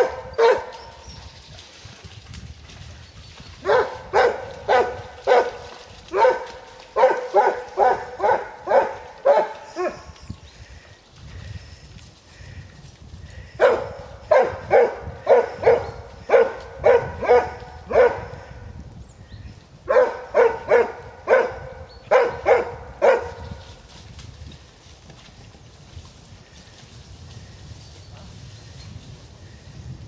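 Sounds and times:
hound bay barking: 0.0 - 0.8, 3.6 - 10.0, 13.6 - 18.4, 19.9 - 23.4.

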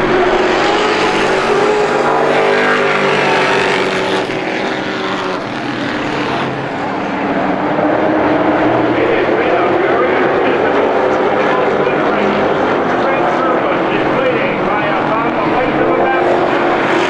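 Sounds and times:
race truck engines at speed: 0.0 - 17.0.

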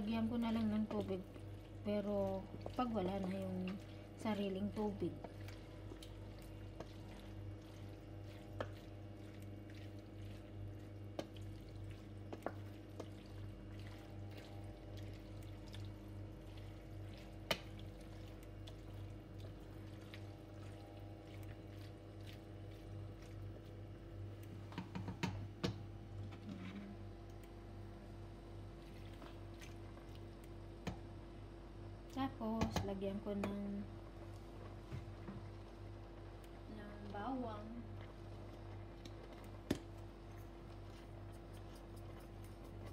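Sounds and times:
wet bubbling and squishing: 0.0 - 26.4, 27.0 - 31.4
steady low hum: 0.0 - 42.9.

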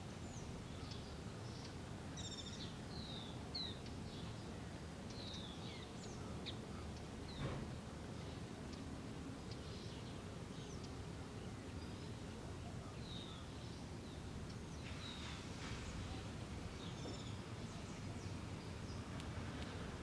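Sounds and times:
steady low background noise: 0.0 - 20.0.

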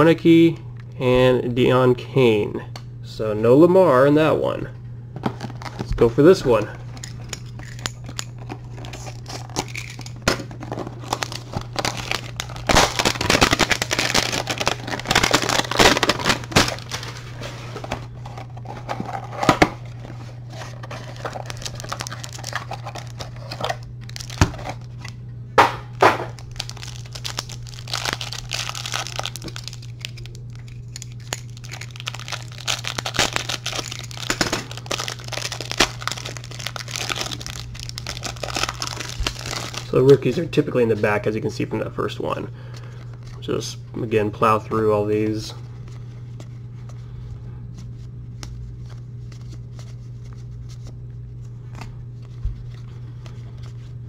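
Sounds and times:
steady low hum: 0.0 - 54.0
plastic wrapper crinkling and tearing: 5.4 - 6.0, 6.9 - 25.2, 26.3 - 40.4.

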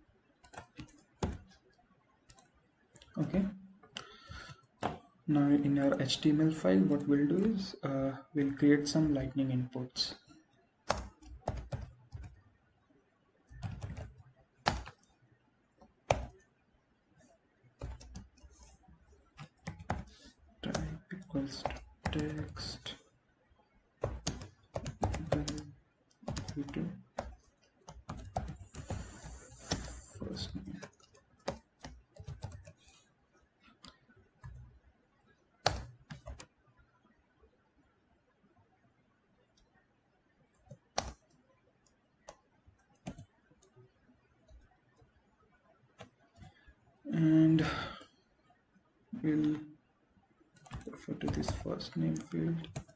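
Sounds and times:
computer keyboard typing: 0.4 - 1.6, 2.3 - 3.1, 10.8 - 12.4, 13.5 - 15.2, 15.8 - 16.5, 17.2 - 23.0, 24.0 - 33.0, 33.8 - 34.8, 35.6 - 36.5, 40.5 - 43.7, 50.6 - 52.9.

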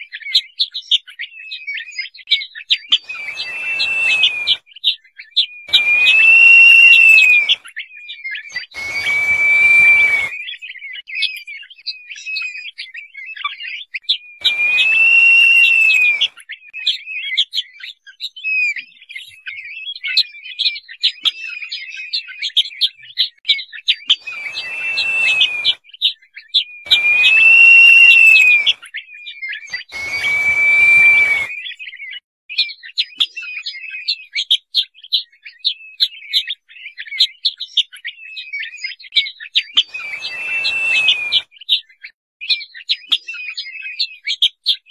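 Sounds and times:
bird long rising whistles: 2.9 - 4.6, 5.7 - 7.6, 8.5 - 10.4, 14.4 - 16.4, 24.2 - 25.8, 26.9 - 28.8, 29.7 - 31.7, 39.9 - 41.4
bird short high chirps: 2.9 - 4.6, 5.7 - 7.6, 8.5 - 10.6, 14.4 - 16.3, 24.2 - 25.8, 26.9 - 28.8, 29.7 - 31.8, 39.9 - 41.4.

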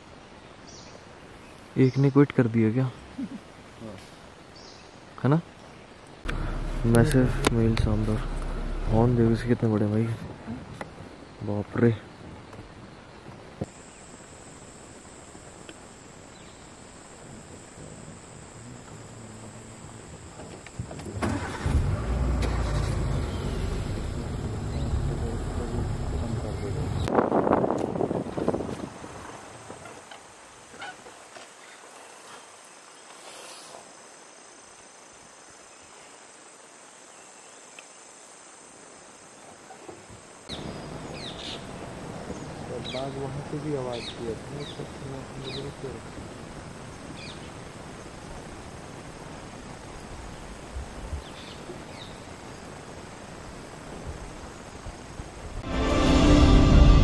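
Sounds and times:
quiet forest background: 0.0 - 56.8
rushing noise: 6.3 - 9.9, 55.6 - 57.0
high-pitched insect chorus: 13.6 - 27.1, 29.2 - 55.5.

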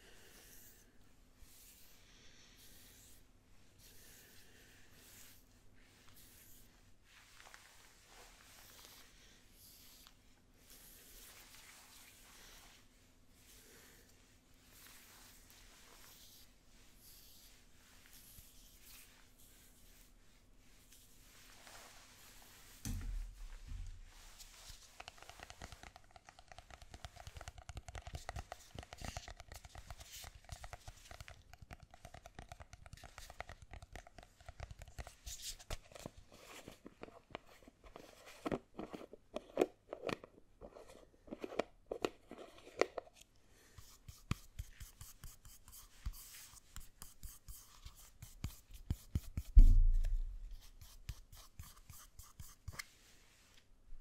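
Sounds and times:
low thump: 22.8 - 24.1, 49.6 - 50.5.

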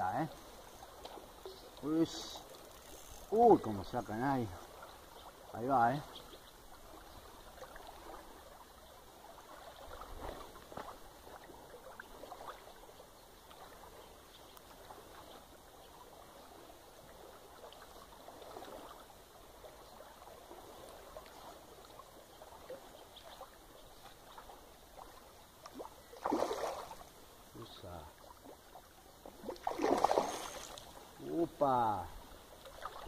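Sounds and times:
creek water running: 0.0 - 33.0
small ticks: 0.4 - 3.7.

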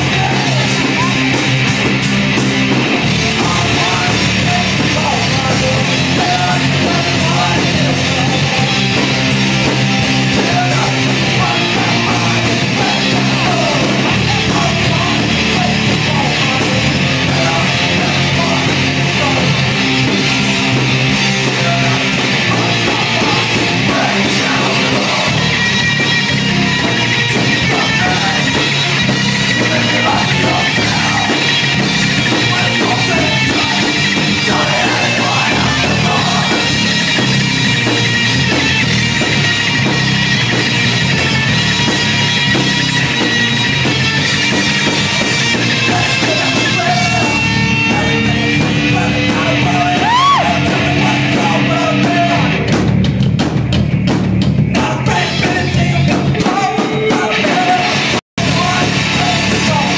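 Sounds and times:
person singing: 0.0 - 1.6, 3.1 - 20.2, 21.2 - 25.6, 27.4 - 37.2, 45.6 - 52.6, 54.7 - 59.9
bass guitar: 0.0 - 59.9
distorted electric guitars: 0.0 - 59.9
drums: 0.0 - 59.9.

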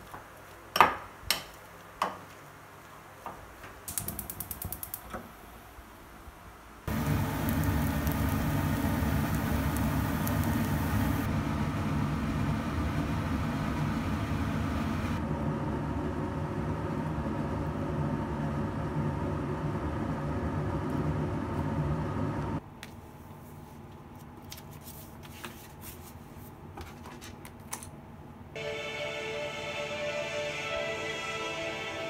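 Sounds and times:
machine rumbling and humming: 6.9 - 22.6.

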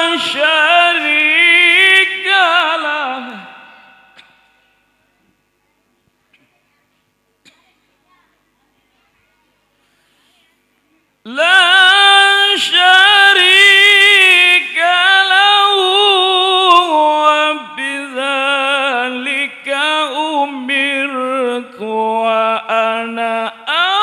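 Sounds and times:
man chanting recitation: 0.0 - 3.8, 11.3 - 24.0
breaths between phrases: 9.8 - 10.6.

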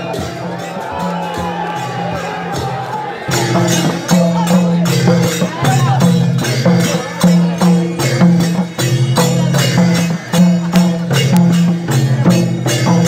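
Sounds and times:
jingling percussion beat: 0.0 - 13.0.

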